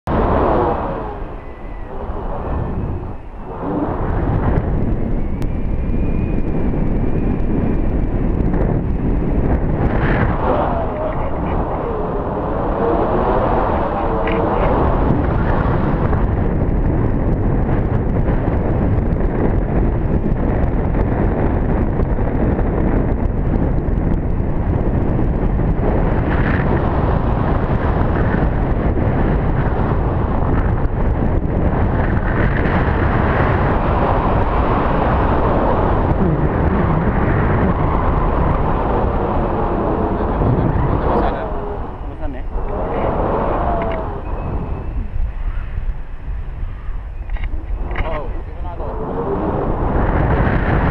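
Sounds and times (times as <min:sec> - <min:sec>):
wind buffeting microphone: 0:00.0 - 0:50.9.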